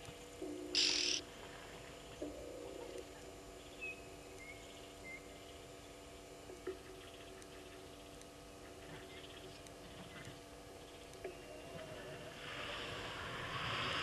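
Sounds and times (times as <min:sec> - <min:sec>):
low steady hum: 0:00.0 - 0:14.0
faint whistled bird notes: 0:00.8 - 0:01.2, 0:03.6 - 0:05.6.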